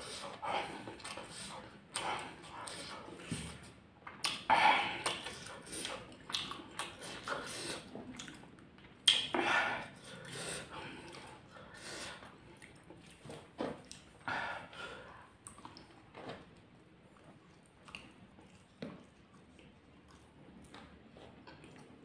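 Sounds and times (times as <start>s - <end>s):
man chewing food: 0.0s - 22.0s
heavy open-mouth breathing: 9.3s - 12.5s, 14.2s - 15.4s.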